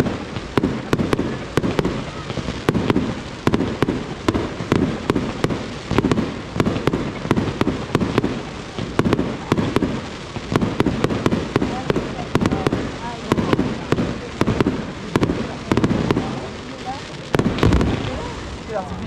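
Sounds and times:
fireworks sharp bangs: 0.0s - 19.0s
low rumble: 17.2s - 19.0s.

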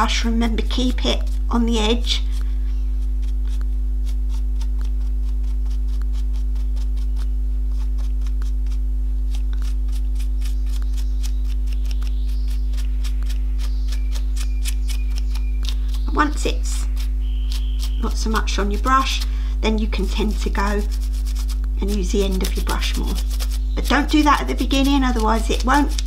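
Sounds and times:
low electrical hum: 0.0s - 26.0s
paintbrush dabbing and scraping: 16.0s - 26.0s.

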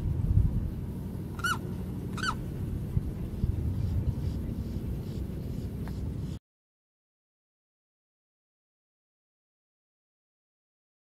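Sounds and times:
steady low rumble: 0.0s - 6.4s
high bird calls: 1.4s - 2.4s.

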